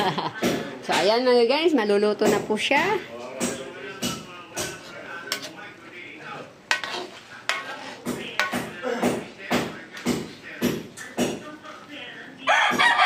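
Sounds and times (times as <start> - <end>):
utensil clanking against wok: 2.2 - 5.6, 6.6 - 11.6.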